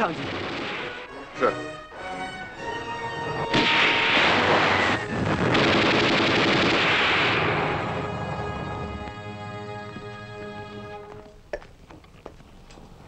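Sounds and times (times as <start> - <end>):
rapid gunfire: 0.0 - 1.2, 3.5 - 8.1
orchestral film score: 0.0 - 11.4.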